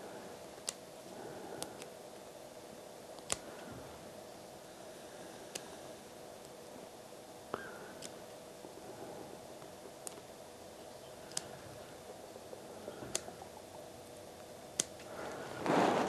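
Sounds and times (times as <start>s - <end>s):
small scissors snipping fabric: 3.2s - 3.6s, 8.0s - 8.2s, 11.2s - 11.6s, 13.1s - 13.3s, 14.7s - 15.1s.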